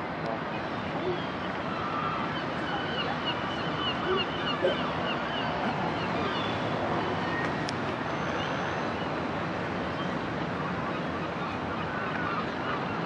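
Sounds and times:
faint voices: 0.3 - 6.1.

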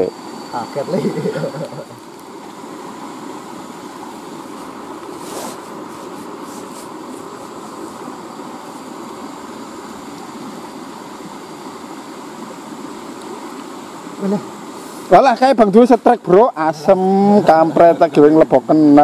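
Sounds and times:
clothing rustling on microphone: 4.5 - 8.0.

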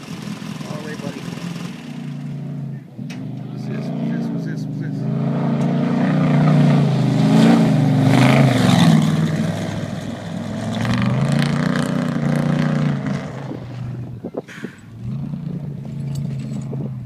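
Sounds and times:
race truck engine revving: 0.0 - 17.0.

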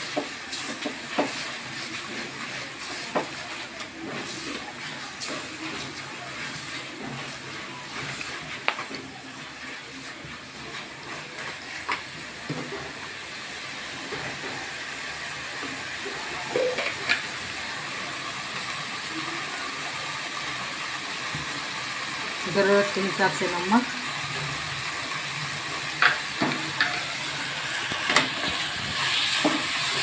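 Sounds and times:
masala sizzling in oil: 0.0 - 30.0.

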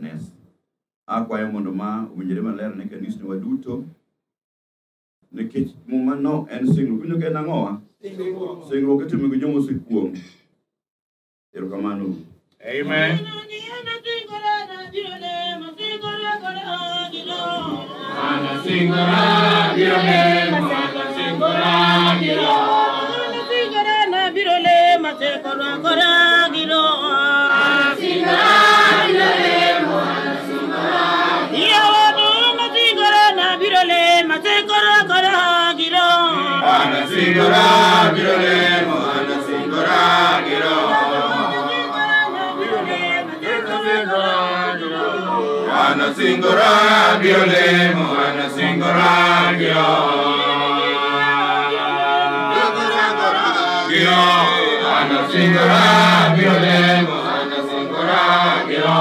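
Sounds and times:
congregation singing a hymn: 12.7 - 34.3, 36.3 - 59.0.

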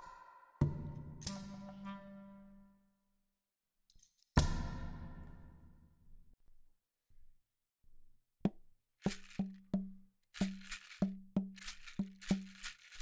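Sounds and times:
toy maraca shaking: 9.0 - 9.8, 10.4 - 13.0.

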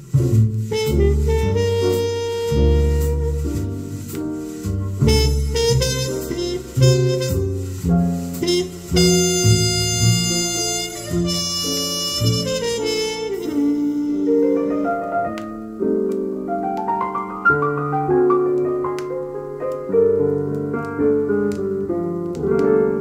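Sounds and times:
walking bass: 0.0 - 14.4
piano solo: 0.0 - 23.0
horn line: 0.3 - 4.0, 4.9 - 15.0.

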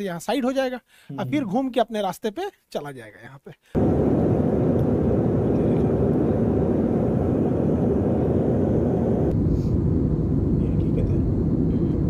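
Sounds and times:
jet cabin engine and airflow rush: 3.8 - 12.0.

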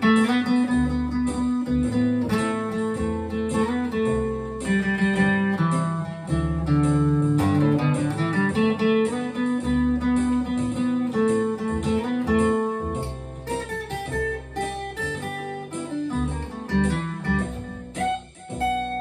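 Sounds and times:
fingerstyle acoustic guitar: 0.0 - 19.0.

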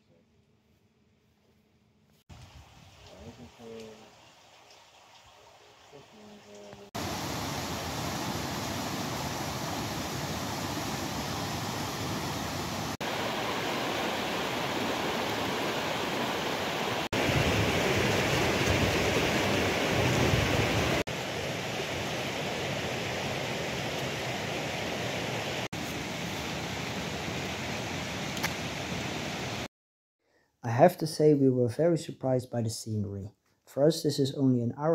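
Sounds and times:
stream rushing over rapids: 6.8 - 29.7.

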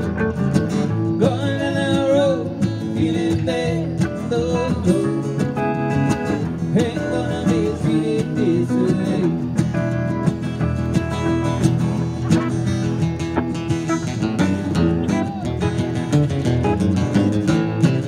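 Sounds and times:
acoustic guitars strumming: 0.0 - 18.0
man singing: 1.0 - 5.6, 6.3 - 9.6.

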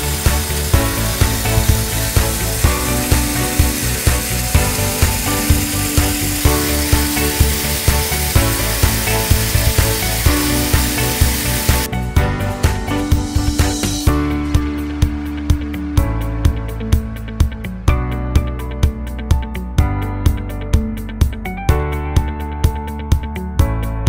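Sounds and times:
electric grain crusher grinding: 0.0 - 15.9
background music with a beat: 0.0 - 24.0.

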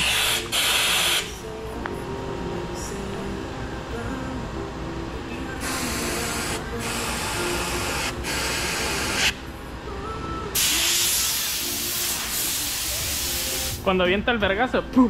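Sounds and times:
compressed air hissing blasts: 0.0 - 1.4, 5.6 - 9.4, 10.6 - 13.8.

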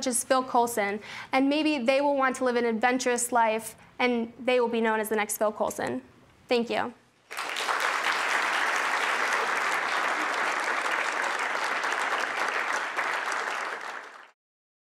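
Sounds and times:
audience applauding: 7.3 - 14.4.

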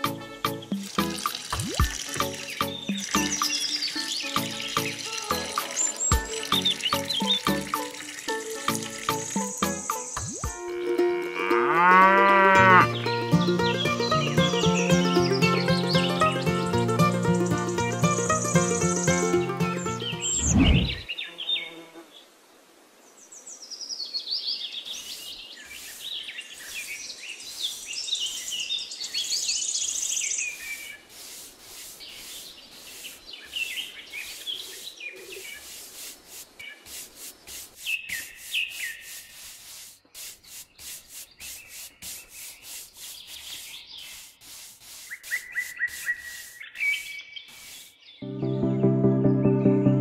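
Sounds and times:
birds chirping: 0.0 - 11.0, 12.6 - 21.8, 24.0 - 35.7, 45.1 - 48.3
paintbrush scrubbing on cement: 25.7 - 28.6, 30.4 - 48.0.

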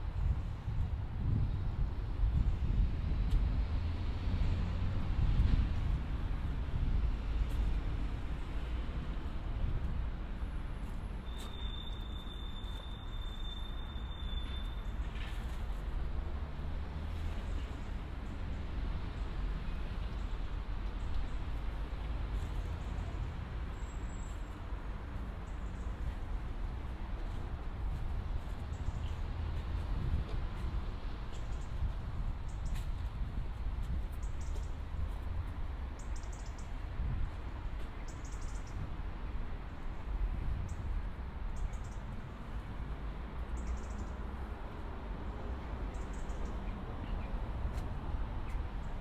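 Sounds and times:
street rumble with hiss: 0.0 - 49.0
faint high whistle: 11.2 - 14.9
small birds chirping: 36.0 - 36.8, 38.1 - 38.8, 43.6 - 44.2.

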